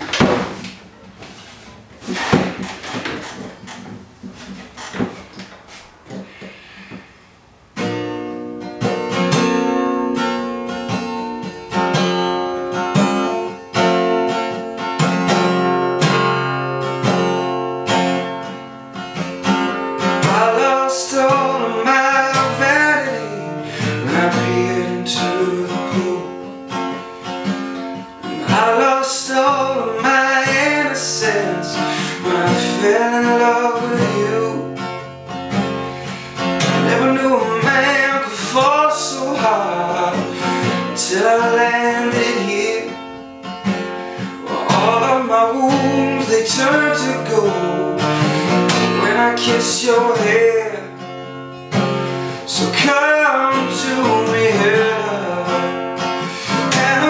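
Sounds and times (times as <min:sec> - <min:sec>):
acoustic guitar strumming: 0:00.0 - 0:57.0
man singing: 0:20.2 - 0:26.6, 0:28.2 - 0:35.0, 0:36.6 - 0:43.1, 0:44.3 - 0:51.1, 0:52.4 - 0:55.8, 0:56.4 - 0:57.0.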